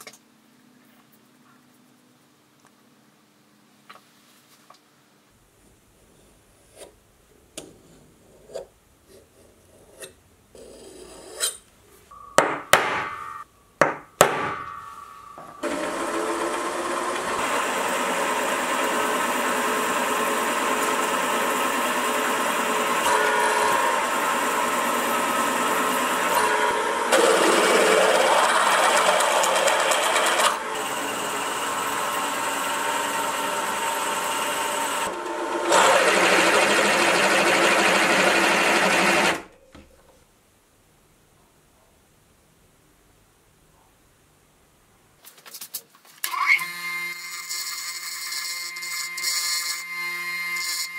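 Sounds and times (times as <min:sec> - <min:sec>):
drill boring into steel: 0:14.7 - 0:39.4, 0:46.3 - 0:50.9
milling machine motor drone: 0:14.9 - 0:39.4.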